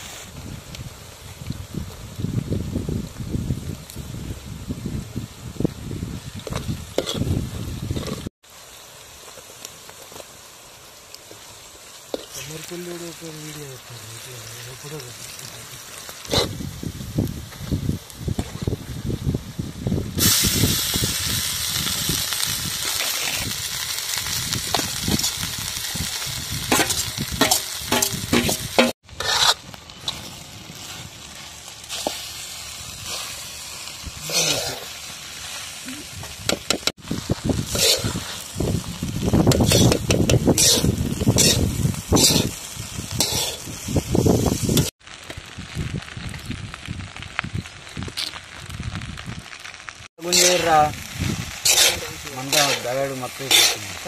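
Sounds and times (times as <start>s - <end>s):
food sizzling in a wok: 0.0s - 54.0s
metal spatula scraping wok: 26.6s - 31.2s, 34.2s - 35.8s, 37.6s - 38.5s, 39.5s - 42.6s, 43.2s - 43.7s, 50.2s - 54.0s.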